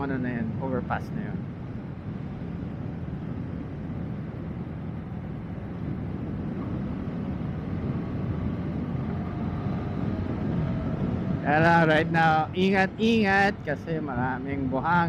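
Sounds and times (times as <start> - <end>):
wind noise: 0.0 - 15.0
motorcycle engine cruising: 4.2 - 14.6.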